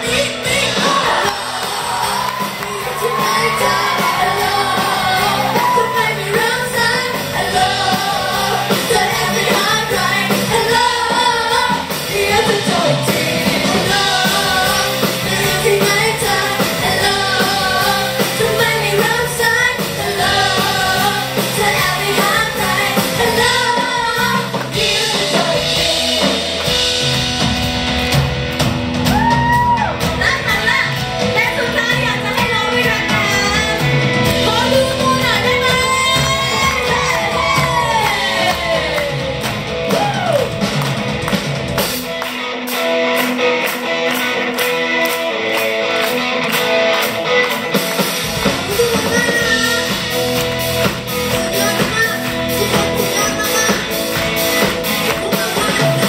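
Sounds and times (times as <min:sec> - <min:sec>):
women singing: 0:00.0 - 0:26.6, 0:34.5 - 0:39.4
live pop-rock band: 0:00.0 - 0:56.0.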